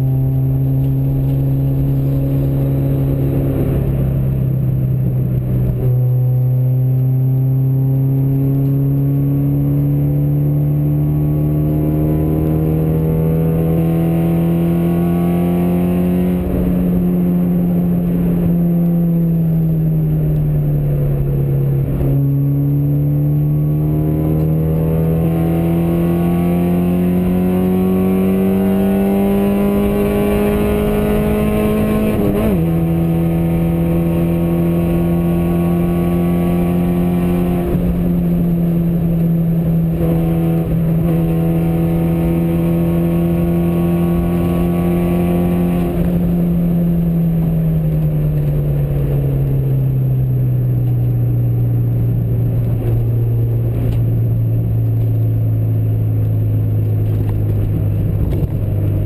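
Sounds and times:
vehicle engine at highway speed: 0:00.0 - 0:59.0.

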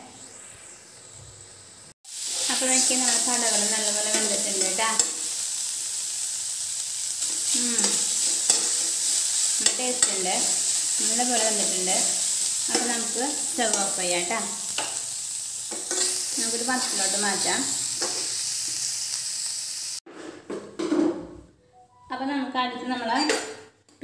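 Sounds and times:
food sizzling in oil: 0:00.0 - 0:20.0.

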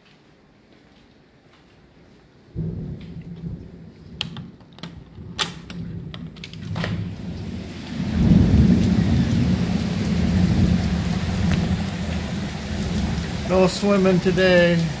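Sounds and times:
thunder rumbling: 0:02.5 - 0:15.0
heavy rain pouring: 0:02.6 - 0:15.0
sharp clicks and rattles: 0:04.2 - 0:07.0.

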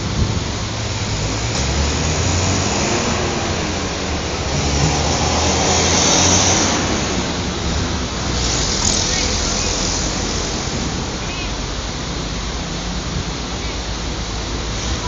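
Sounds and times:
highway traffic rumble: 0:00.0 - 0:15.0
vehicle passing by: 0:01.2 - 0:10.9.

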